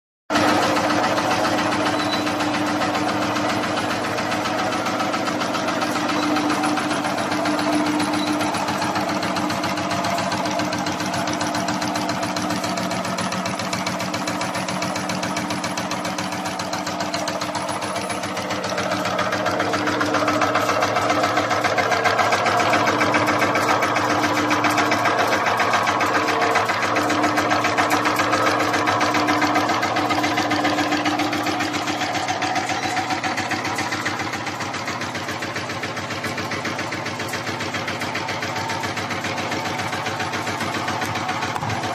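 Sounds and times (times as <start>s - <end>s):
nail-making machine clattering: 0.3s - 41.9s.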